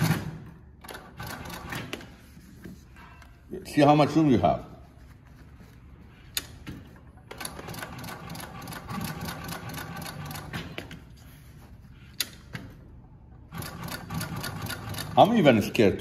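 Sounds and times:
sewing machine stitching: 13.5 - 15.3.

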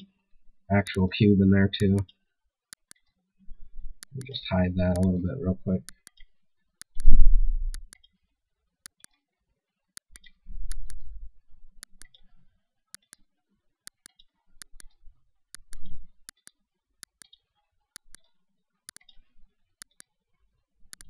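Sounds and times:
computer mouse clicking: 2.7 - 3.0, 4.0 - 5.2, 5.8 - 7.1, 7.7 - 8.1, 8.8 - 9.1, 10.0 - 11.0, 11.8 - 12.3, 12.9 - 13.2, 13.9 - 17.4, 18.0 - 18.3, 18.9 - 19.2, 19.8 - 20.1.

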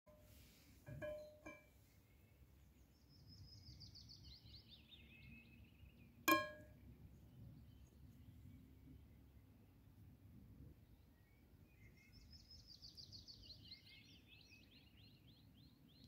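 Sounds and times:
bird singing a descending trill: 3.1 - 6.7.

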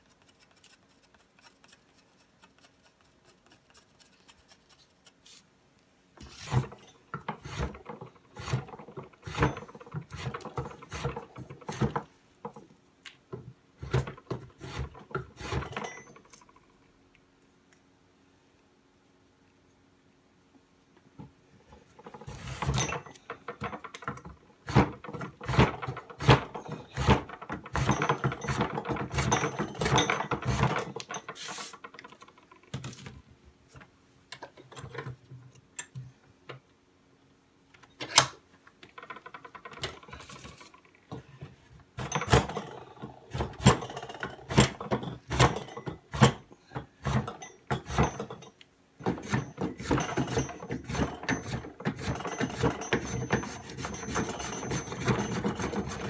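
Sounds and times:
spokeshave scraping wood: 6.2 - 12.1, 30.4 - 31.9.

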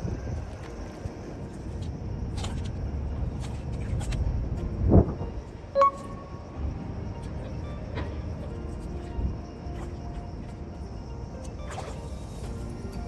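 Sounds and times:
brief high beep: 5.8 - 6.4.

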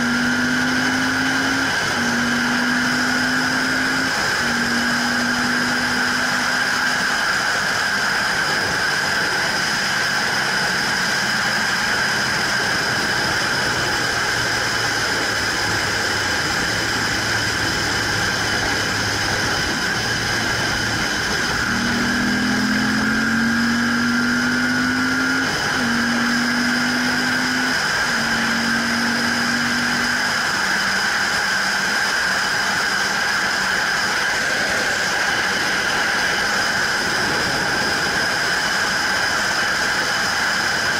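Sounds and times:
motorcycle engine drone: 0.0 - 40.9
wind rush: 33.3 - 40.9.

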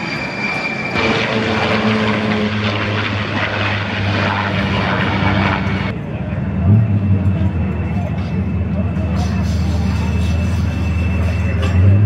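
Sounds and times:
jet engine whine and roar: 0.0 - 12.0.

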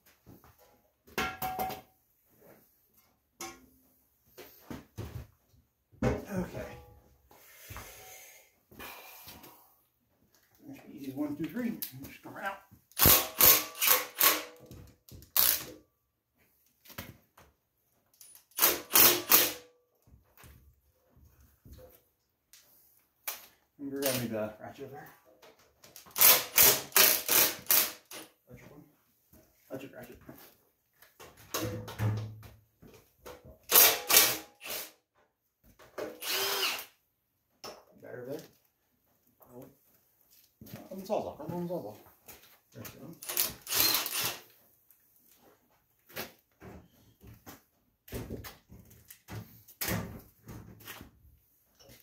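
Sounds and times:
power tool bursts: 13.0 - 14.5, 18.6 - 19.6, 26.2 - 28.1, 36.2 - 36.9, 43.2 - 44.4
impact driver rattling: 13.0 - 14.6, 26.1 - 28.2.

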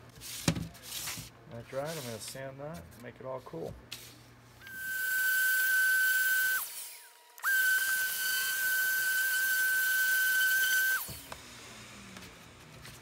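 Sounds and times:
power sander whining: 4.6 - 12.1.

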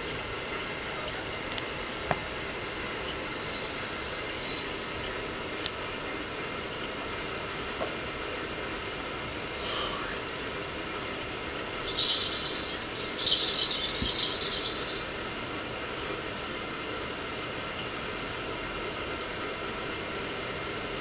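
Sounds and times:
jingle ball rolling on carpet: 3.3 - 5.0, 11.8 - 15.3.

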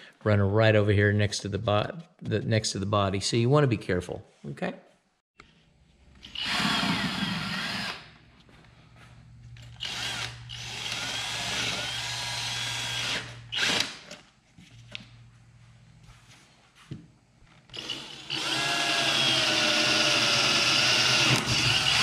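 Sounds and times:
cordless drill boring metal: 6.2 - 8.1, 9.7 - 14.1, 17.7 - 22.0.

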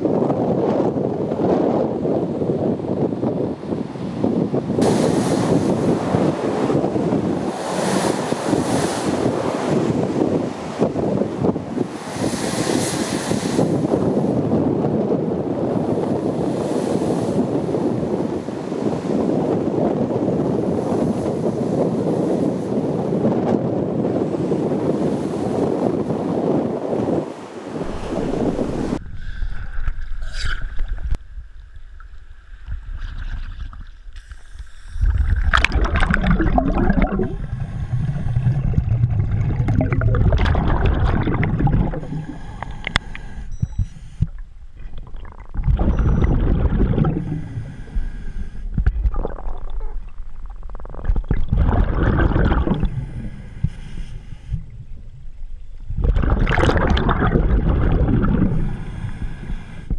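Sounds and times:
diver inhaling through regulator: 34.2 - 38.9, 41.1 - 44.5, 46.2 - 49.5, 52.4 - 55.0, 58.2 - 59.9
exhaled bubbles bursting: 35.0 - 48.1, 48.7 - 53.4, 55.8 - 58.8.

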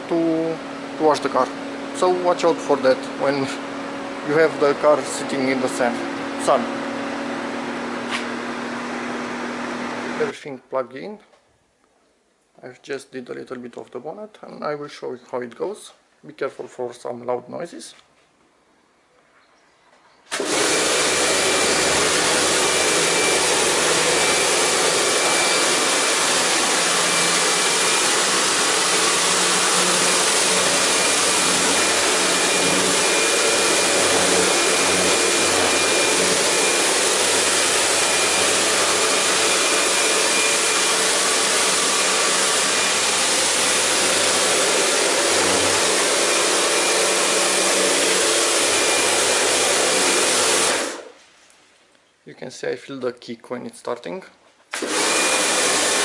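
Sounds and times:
pressure washer motor humming: 0.0 - 10.3, 20.3 - 51.1, 54.7 - 56.0.

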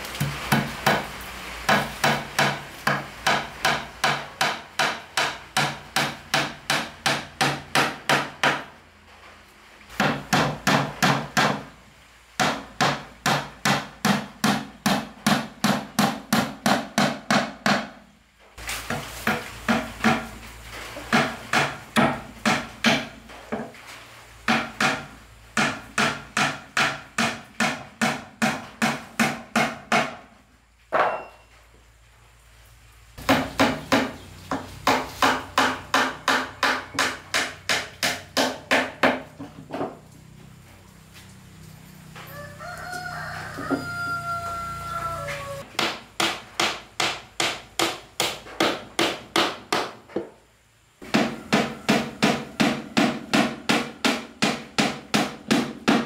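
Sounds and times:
hammer striking wood: 0.2 - 1.1, 1.7 - 8.7, 10.0 - 11.7, 12.4 - 18.0, 18.9 - 20.3, 21.0 - 23.7, 24.5 - 30.3, 30.9 - 31.3, 33.2 - 40.0, 45.7 - 50.3, 51.0 - 56.0.

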